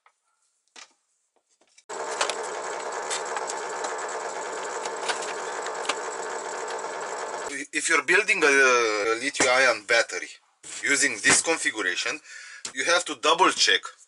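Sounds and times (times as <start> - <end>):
rapid clicking and rattling: 1.9 - 7.5.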